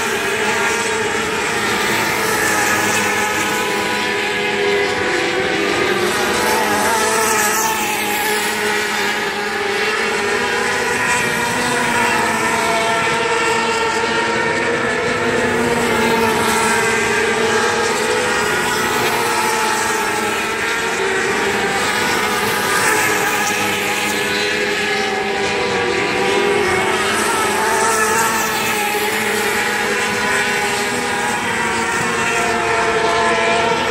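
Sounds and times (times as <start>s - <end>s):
racing car engines droning: 0.0s - 33.9s.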